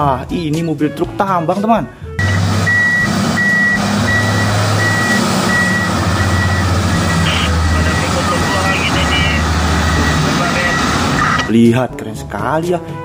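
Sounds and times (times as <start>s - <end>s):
backup alarm beeping: 2.2s - 11.5s
diesel truck engine rumbling: 2.2s - 11.5s.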